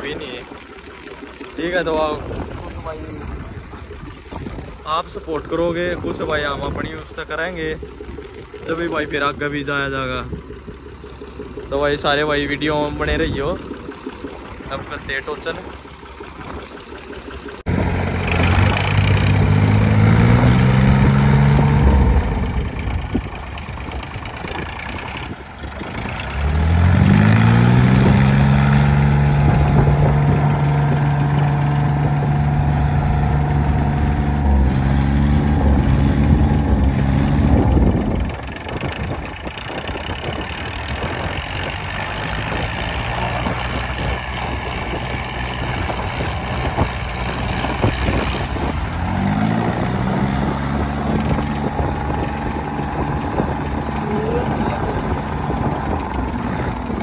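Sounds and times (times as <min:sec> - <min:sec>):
tractor engines straining: 0:00.0 - 0:57.0.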